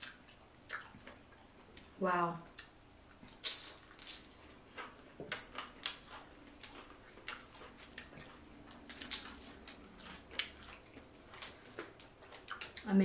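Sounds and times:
shrimp shells cracking: 8.7 - 10.6.

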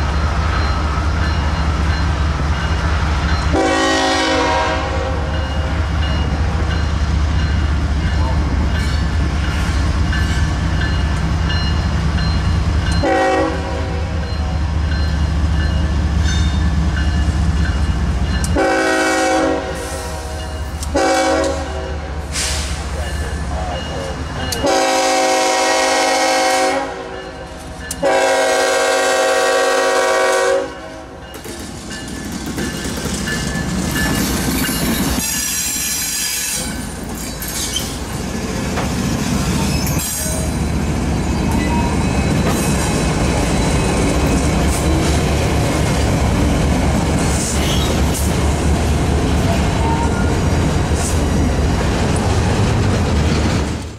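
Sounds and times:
freight train rumbling past: 0.0 - 53.9
locomotive air horn: 3.5 - 5.3, 13.0 - 14.2, 18.6 - 22.7, 24.6 - 27.2, 28.0 - 31.2
high squeal: 34.8 - 38.0, 39.4 - 40.6.

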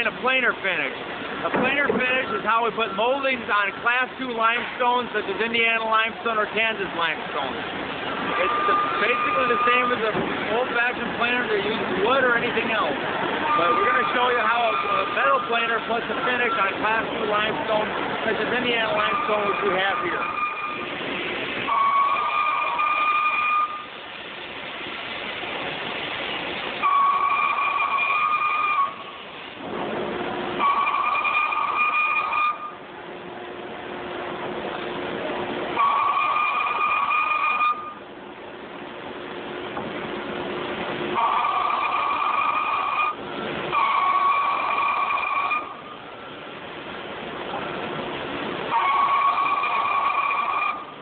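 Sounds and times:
machine noise: 0.0 - 51.0
stone planer squealing: 8.3 - 10.1, 13.5 - 16.8, 18.8 - 20.8, 30.6 - 32.8, 41.2 - 45.8, 48.7 - 50.9.

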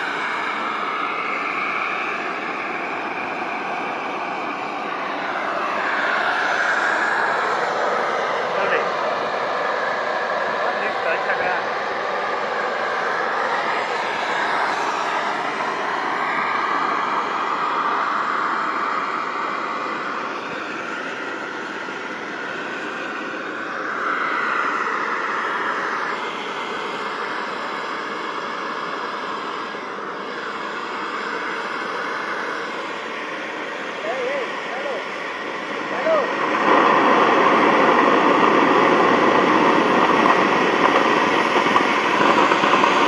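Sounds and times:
model jet turbine whine: 0.0 - 43.0.

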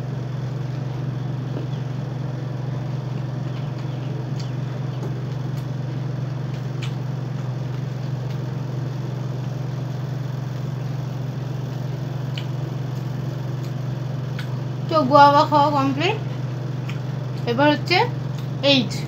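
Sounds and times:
steady low hum: 0.0 - 19.0
crisp chewing clicks: 2.8 - 9.6, 11.7 - 14.7, 16.7 - 17.6, 18.2 - 18.6.

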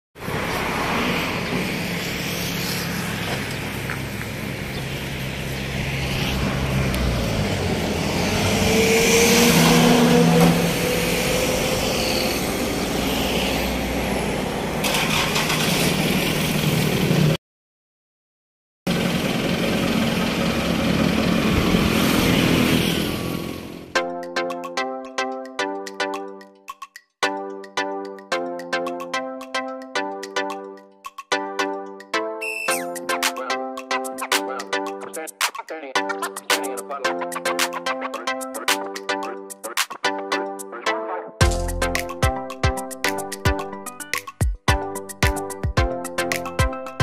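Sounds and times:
road traffic passing: 0.2 - 17.4, 18.9 - 24.0
light music with plucked notes: 24.0 - 47.0.

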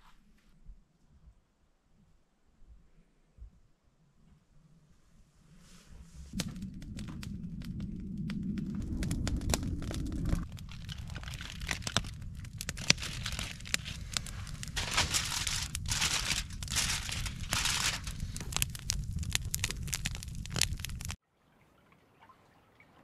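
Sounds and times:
steady low rumble: 6.0 - 21.2
campfire crackling and popping: 6.3 - 21.2
aluminium foil crinkling: 8.6 - 21.2.

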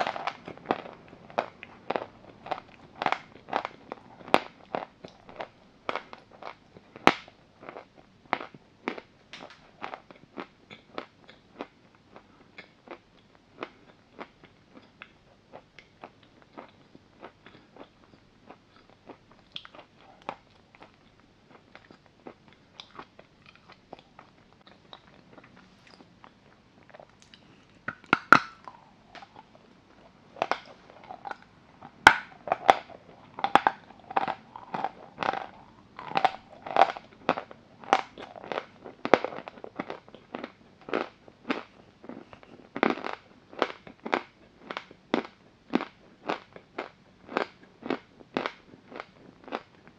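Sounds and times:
chalk being chewed: 32.4 - 49.8.

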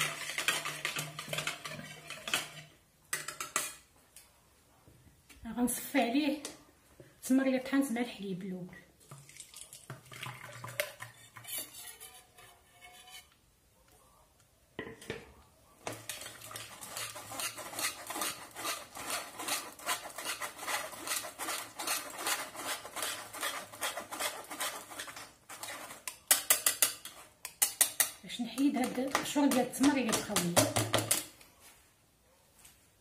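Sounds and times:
wire whisk stirring fast: 0.0 - 2.6, 16.0 - 31.2
liquid pouring into sieve: 9.0 - 11.5.

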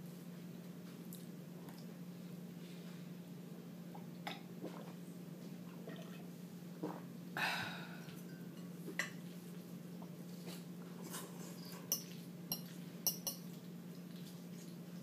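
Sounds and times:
steady low hum: 0.0 - 15.0
fork clinking against bowl: 11.8 - 13.4.

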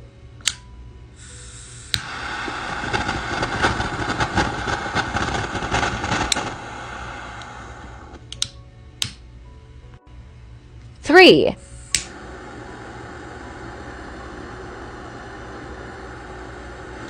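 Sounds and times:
lighter ignition click: 0.4 - 9.2, 11.7 - 12.2
jet flame hissing: 1.2 - 8.3, 11.4 - 17.0.

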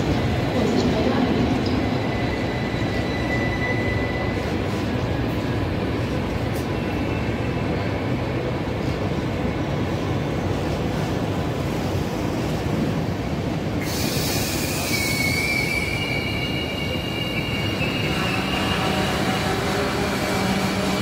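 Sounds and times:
train coaches rumbling: 0.0 - 21.0
wheel squeal and hiss: 13.8 - 19.1.

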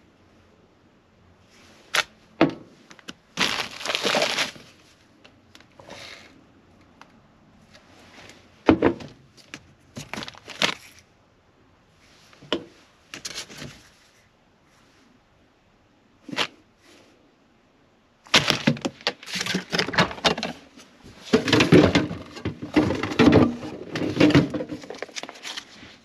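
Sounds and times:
plastic bag crinkling: 2.9 - 4.8, 10.0 - 11.1.

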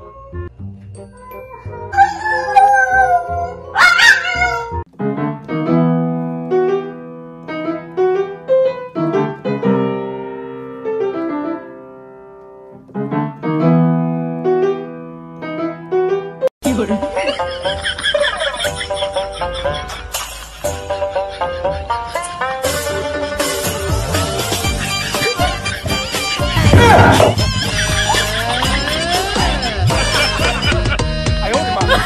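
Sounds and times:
slow piano melody: 0.0 - 3.8, 4.4 - 16.5.

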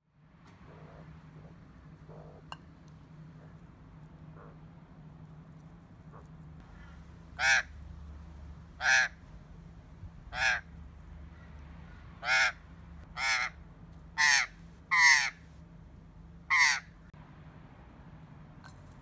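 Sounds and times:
magpie calls: 6.8 - 7.8, 8.8 - 9.2, 10.3 - 10.7, 11.3 - 13.6, 14.2 - 15.5, 16.5 - 17.0.

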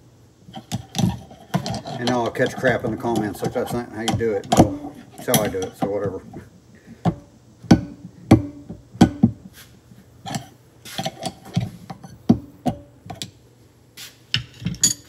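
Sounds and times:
screwdrivers clicking on metal: 0.5 - 6.4, 10.3 - 13.3, 14.4 - 15.0.

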